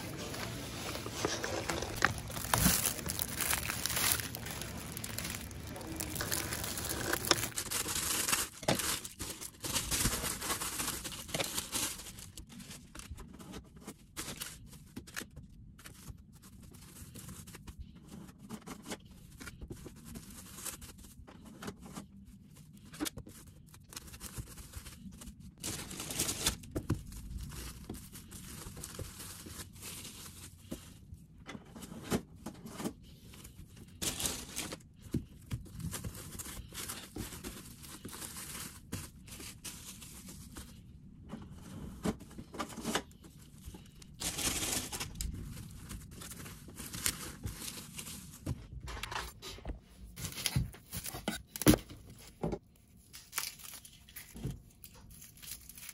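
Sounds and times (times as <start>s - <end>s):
cling film tearing and crumpling: 0.0s - 12.5s, 53.1s - 55.9s
plastic bag crinkling: 0.0s - 12.6s, 43.5s - 48.4s.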